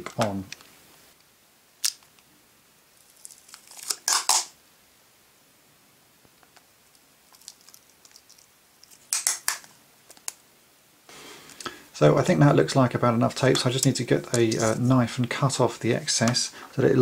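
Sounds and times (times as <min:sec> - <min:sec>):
faint tape crinkling: 0:03.0 - 0:04.5, 0:06.3 - 0:10.4
sticky tape peeling off roll: 0:03.2 - 0:04.5, 0:08.8 - 0:10.4.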